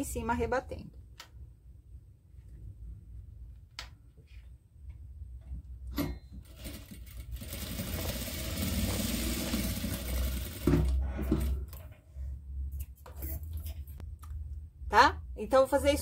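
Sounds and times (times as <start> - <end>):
sewing machine sharp knocks: 6.0 - 11.6
sewing machine stitching: 6.4 - 11.8.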